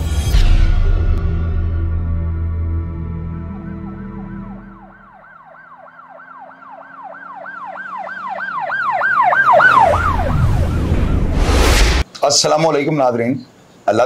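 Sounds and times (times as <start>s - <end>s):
rushing whoosh with deep rumble: 9.6s - 12.0s.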